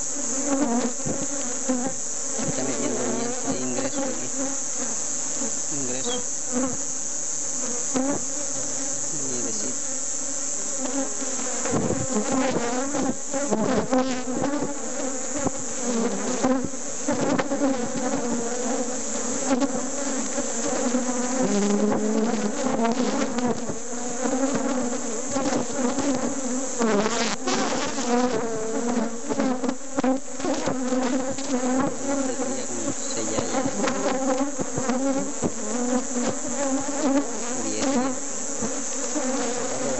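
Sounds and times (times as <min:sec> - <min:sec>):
honeybees buzzing: 0:00.0 - 0:39.9.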